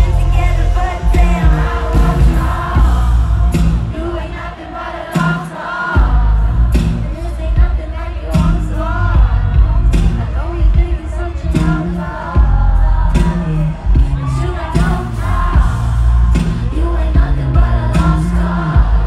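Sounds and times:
crowd singing along: 0:00.0 - 0:19.0
heavy bass beat: 0:00.0 - 0:19.0
woman singing: 0:00.0 - 0:19.0.

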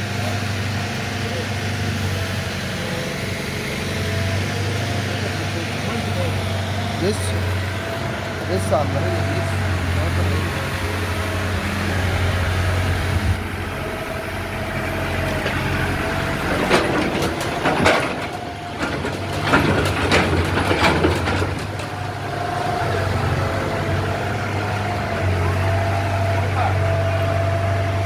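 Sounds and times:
diesel engine idling: 0:00.0 - 0:28.0
sharp knocks and rattles: 0:15.2 - 0:22.2.

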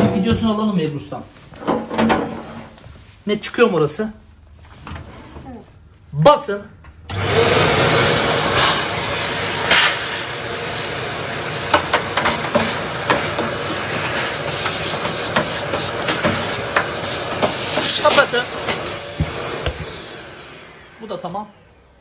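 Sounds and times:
vacuum cleaner running: 0:07.1 - 0:22.0.

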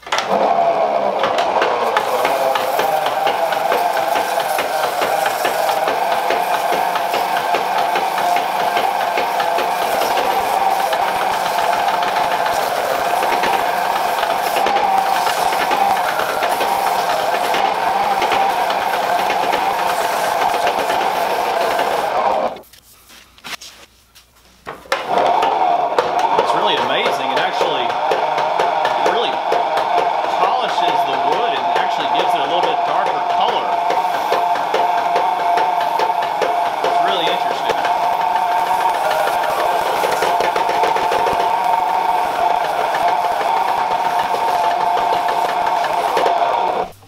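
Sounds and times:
treadle lathe clattering: 0:00.0 - 0:22.6, 0:24.8 - 0:47.0.

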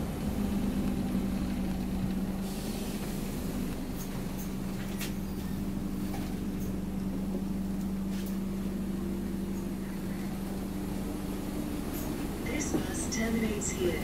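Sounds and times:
bus diesel engine drone: 0:00.0 - 0:14.0.

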